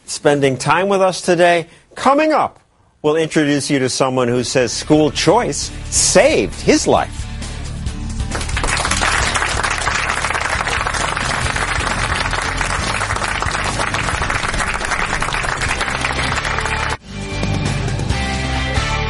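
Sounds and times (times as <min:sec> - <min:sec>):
background music: 0:04.3 - 0:19.0
studio audience applauding: 0:08.2 - 0:17.0.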